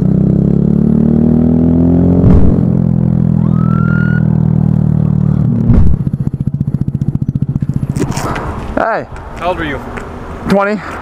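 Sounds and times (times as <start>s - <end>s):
motorcycle engine running: 0.0s - 8.8s
thump: 2.2s - 2.7s, 5.6s - 6.1s
rising siren chirp: 3.2s - 5.7s.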